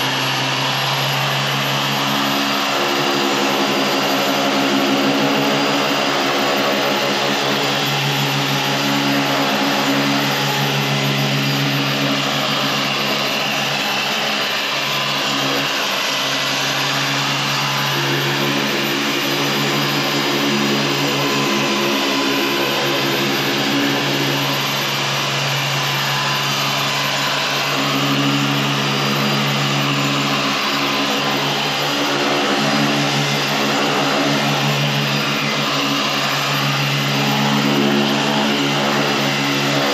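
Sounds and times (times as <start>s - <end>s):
electric polisher motor hum: 0.0s - 39.9s.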